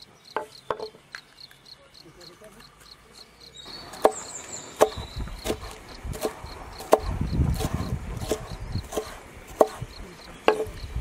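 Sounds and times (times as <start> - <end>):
knife slicing pepper: 4.8 - 10.8
knife knocking on wooden board: 10.5 - 10.8.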